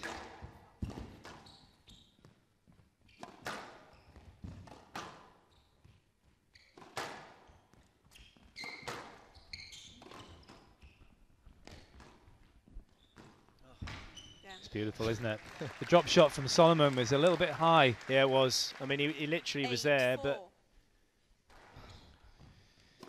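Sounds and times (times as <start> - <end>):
squash ball hitting rackets and walls: 0.0 - 1.5, 3.1 - 14.3
shoes squeaking on wooden floor: 0.8 - 2.5, 3.9 - 4.6, 7.5 - 15.0.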